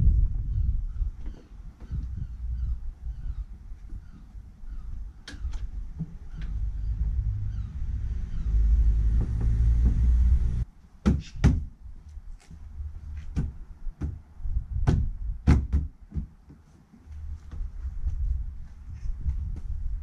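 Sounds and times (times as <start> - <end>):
low rumble: 0.0 - 1.2, 1.9 - 10.7.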